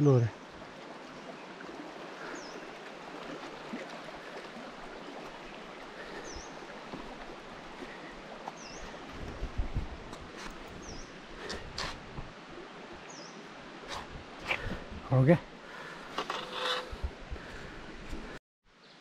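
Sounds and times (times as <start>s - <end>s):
river flowing over rocks: 0.4s - 9.3s.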